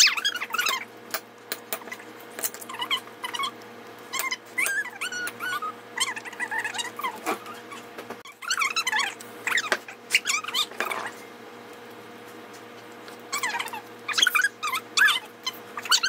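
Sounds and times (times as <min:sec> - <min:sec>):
animal whimpering: 0:00.0 - 0:00.9, 0:01.8 - 0:03.6, 0:04.2 - 0:11.3, 0:13.3 - 0:16.0.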